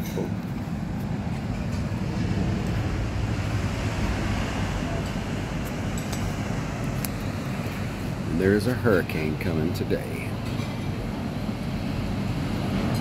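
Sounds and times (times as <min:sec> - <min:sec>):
wind buffeting microphone: 0:00.4 - 0:09.2
heavy surf breaking on beach: 0:01.2 - 0:09.0.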